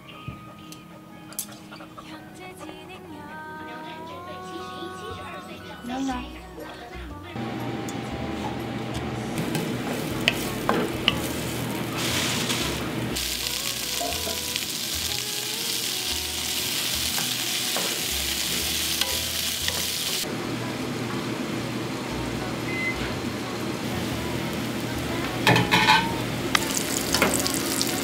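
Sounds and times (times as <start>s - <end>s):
vegetables sizzling in a wok: 9.4s - 28.0s.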